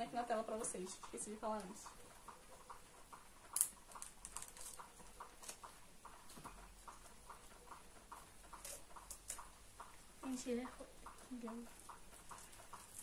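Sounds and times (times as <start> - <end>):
faint regular ticking: 0.0 - 13.0
book handling clicks and rustles: 3.5 - 6.6, 12.2 - 13.0.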